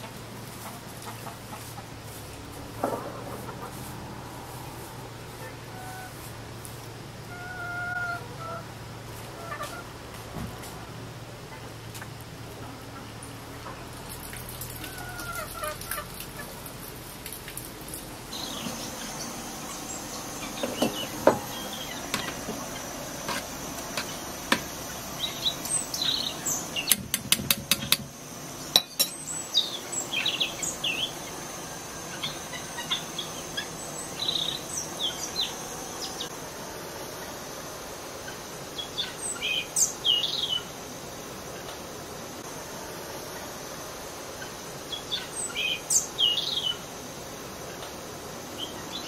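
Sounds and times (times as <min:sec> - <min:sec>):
faint high insect drone: 0:00.0 - 0:49.0
small birds chirping: 0:18.3 - 0:27.1, 0:27.7 - 0:36.4.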